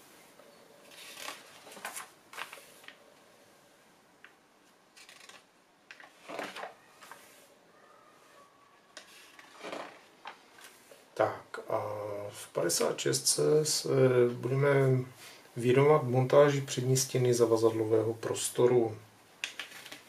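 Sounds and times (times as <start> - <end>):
magazine pages turning: 0.8 - 3.0, 4.6 - 7.4, 9.0 - 11.0, 19.4 - 20.0.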